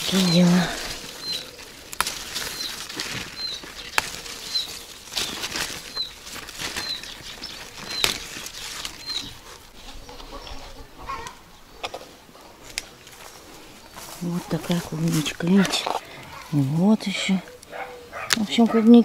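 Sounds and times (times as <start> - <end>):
plant stems snapping: 0.0 - 10.3
bird chirping: 0.0 - 19.0
leaves rustling: 0.0 - 19.0.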